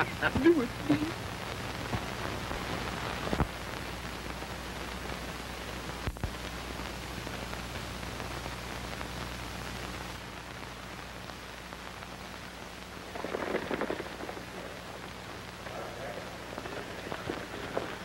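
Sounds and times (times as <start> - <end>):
film soundtrack hiss and crackle: 0.0 - 18.0
low hum: 0.0 - 18.0.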